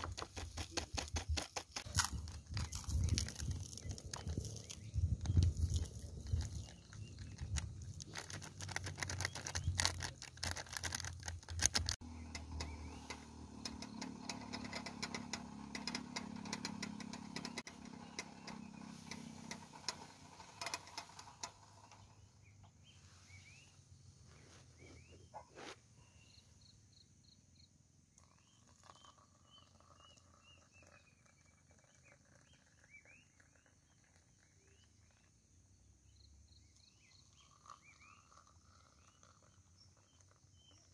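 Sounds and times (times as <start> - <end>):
paper sachet rustling: 0.0 - 12.0
faint bird chirps: 17.8 - 40.9.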